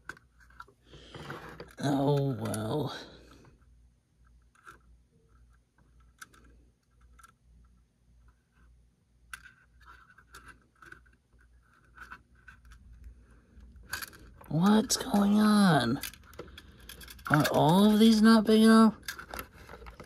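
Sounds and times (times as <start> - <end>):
low steady hum: 0.0 - 20.0
small model parts clicking: 4.4 - 7.4.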